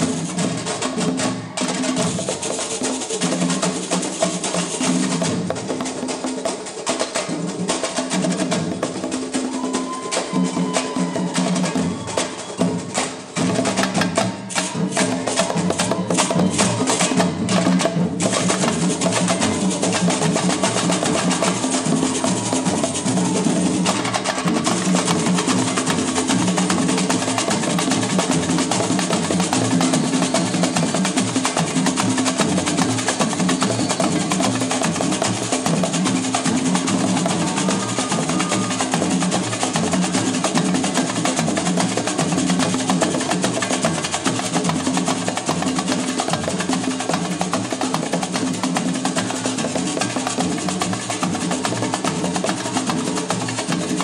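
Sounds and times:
samba hand drumming: 0.0s - 54.0s.

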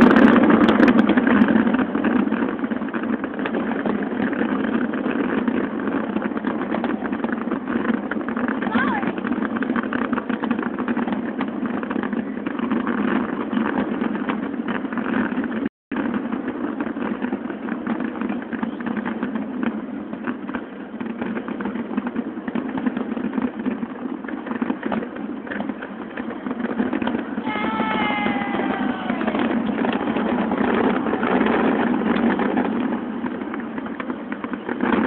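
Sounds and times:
engine rumble with rapid flutter: 0.0s - 35.0s.

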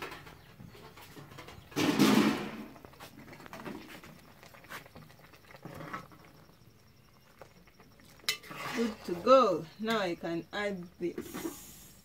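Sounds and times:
spoon stirring in a pot: 7.3s - 9.6s.

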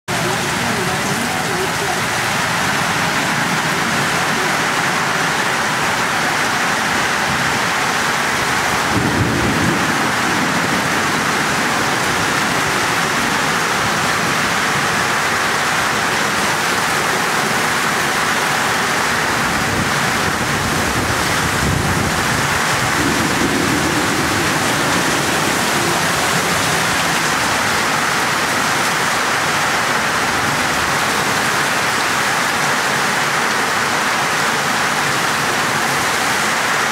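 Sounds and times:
heavy rain pouring: 0.0s - 36.9s
low rumbles: 19.6s - 28.8s.

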